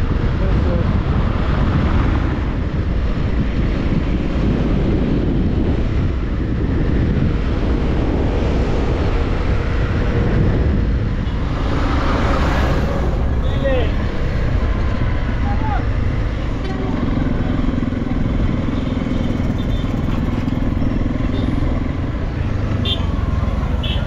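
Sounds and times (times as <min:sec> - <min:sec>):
wind buffeting on microphone: 0:00.0 - 0:24.0
motorcycle engine running: 0:16.0 - 0:24.0.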